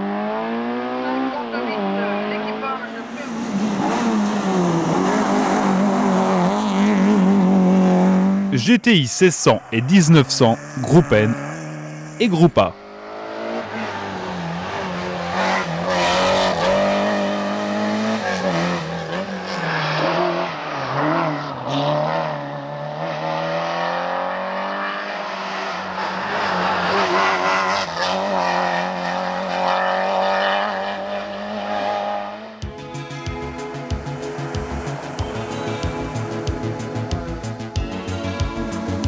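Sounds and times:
rally car engine revving: 0:00.0 - 0:08.6, 0:09.6 - 0:32.6
music with steady beat: 0:32.6 - 0:39.0.

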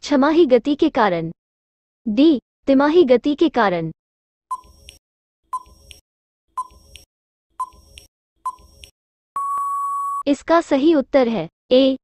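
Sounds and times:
long steady beep: 0:09.4 - 0:10.3.

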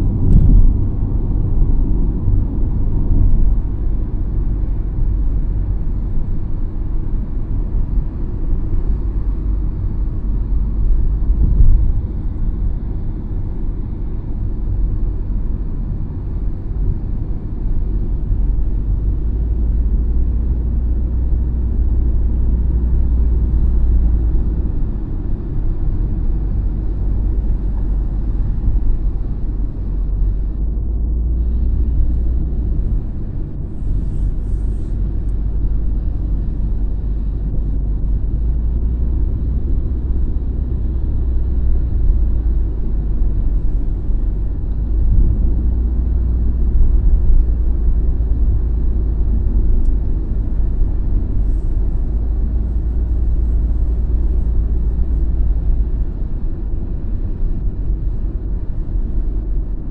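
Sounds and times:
tyre and road noise inside car: 0:00.0 - 0:59.9
thump: 0:00.2 - 0:00.8.

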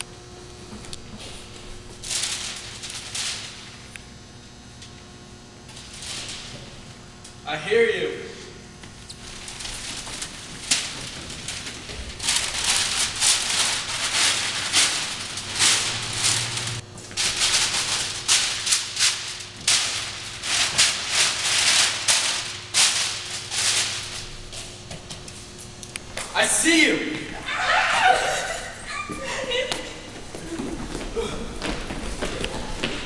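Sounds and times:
rustling rattling noise: 0:09.2 - 0:25.3.

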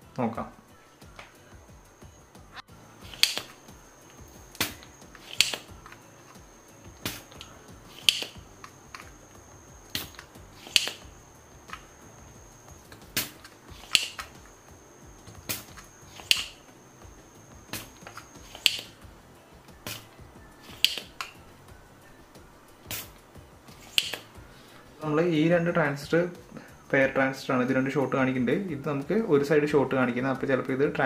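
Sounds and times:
desoldering pump snapping clicks: 0:02.5 - 0:09.2, 0:09.9 - 0:11.9, 0:12.9 - 0:14.5, 0:15.3 - 0:16.6, 0:17.7 - 0:19.1, 0:19.8 - 0:21.4, 0:22.8 - 0:24.4.

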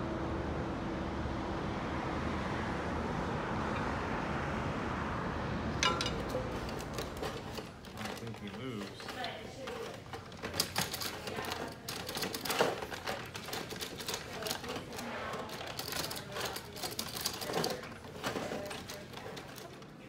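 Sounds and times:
plastic toy clacking: 0:05.8 - 0:19.9.

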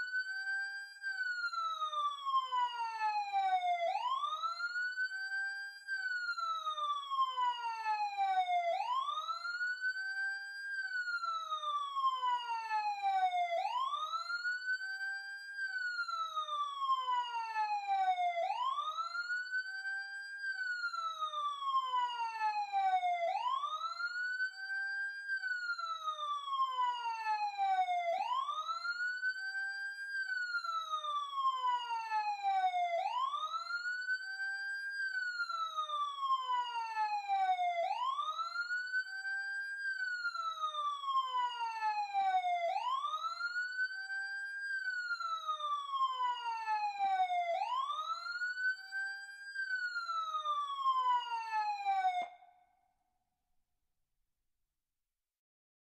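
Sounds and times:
emergency siren wailing: 0:00.0 - 0:52.8.

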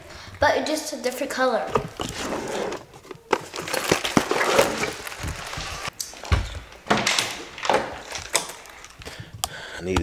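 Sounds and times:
rustling in plastic drawer organizer: 0:01.7 - 0:05.9.

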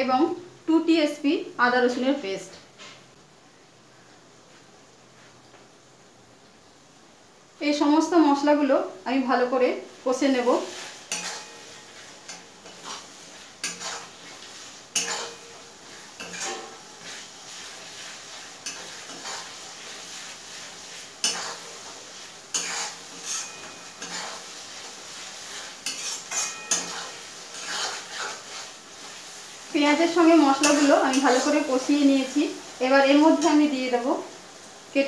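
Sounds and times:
oil sizzling: 0:07.9 - 0:35.0
metal spatula scraping a pan: 0:10.3 - 0:32.6.

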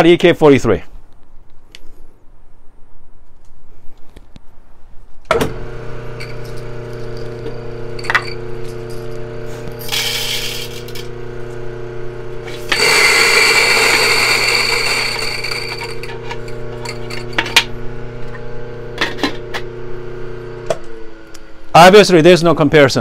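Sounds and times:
grinder motor humming: 0:05.4 - 0:21.8
coffee beans grinding: 0:05.6 - 0:21.0.

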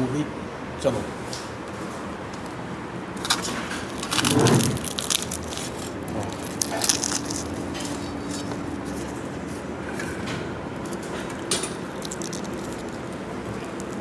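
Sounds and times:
crisp flatbread tearing: 0:03.2 - 0:09.2, 0:10.8 - 0:14.0.

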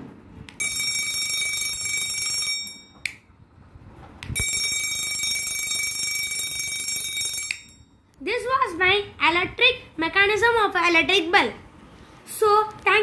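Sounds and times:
electric bell ringing: 0:00.6 - 0:03.1, 0:04.4 - 0:08.0.

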